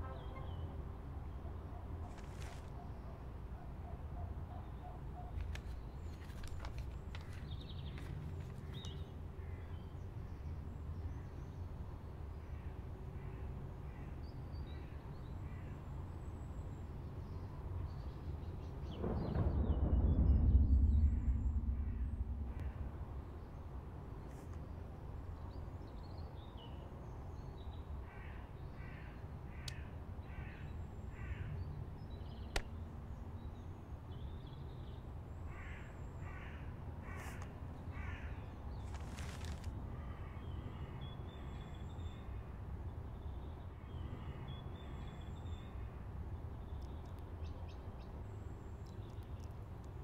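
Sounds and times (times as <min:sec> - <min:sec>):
low outdoor rumble: 0:18.5 - 0:25.5
bird cawing: 0:28.1 - 0:31.6, 0:35.5 - 0:38.6.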